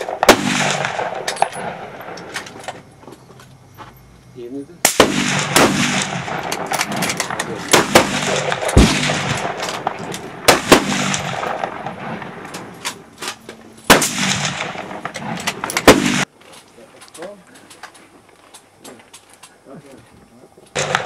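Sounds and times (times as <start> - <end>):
suppressed rifle shot: 0.1 - 2.3, 4.9 - 12.7, 13.9 - 16.3, 20.8 - 21.0
sharp cracks and knocks: 4.9 - 19.6, 20.6 - 21.0.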